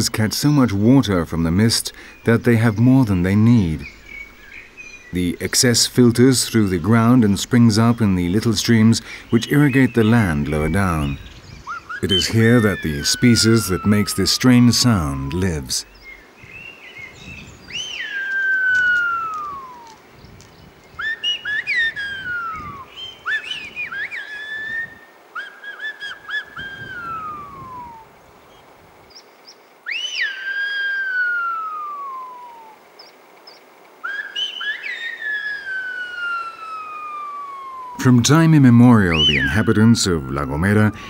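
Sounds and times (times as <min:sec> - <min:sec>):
man whistling phrases: 0:37.3 - 0:41.0.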